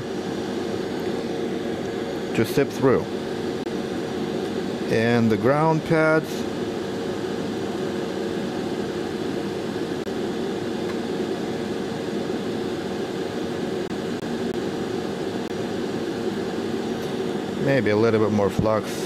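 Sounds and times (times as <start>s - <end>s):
hot air blower rushing: 0.0s - 19.0s
steady hum: 0.0s - 19.0s.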